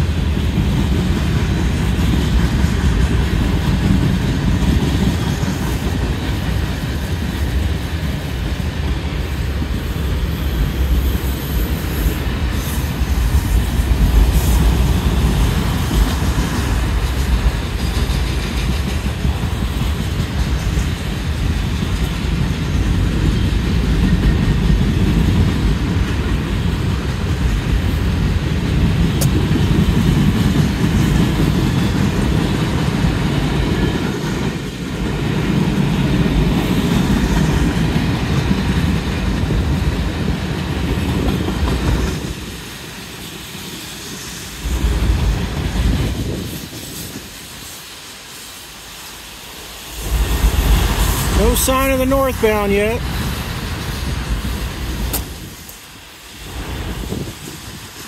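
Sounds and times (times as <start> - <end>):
clickety-clack of wheels: 0.0 - 47.8, 53.0 - 58.0
train wheels rumbling on rails: 0.0 - 58.0.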